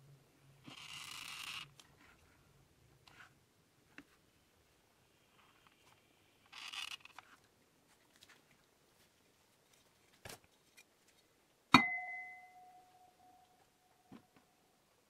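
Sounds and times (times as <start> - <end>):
scratchy rustle: 5.4 - 11.3.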